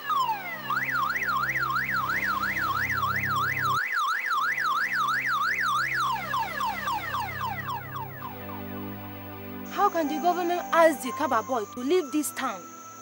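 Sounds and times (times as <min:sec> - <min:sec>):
low steady tones: 0:00.0 - 0:03.8, 0:04.5 - 0:13.0
electronic siren yelping: 0:00.0 - 0:08.5.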